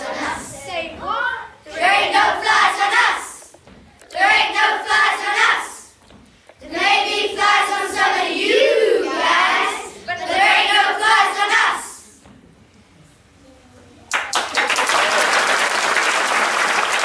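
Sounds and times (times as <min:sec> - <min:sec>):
children singing together: 0:00.0 - 0:01.0, 0:01.7 - 0:06.0, 0:06.6 - 0:12.1.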